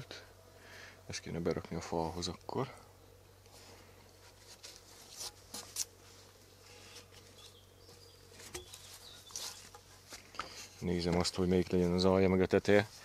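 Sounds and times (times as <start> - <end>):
wooden beam knocking and scraping: 8.4 - 11.3.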